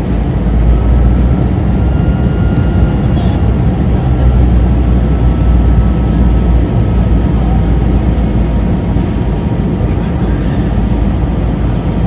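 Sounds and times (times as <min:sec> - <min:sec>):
jet engines rumbling: 0:00.0 - 0:12.0.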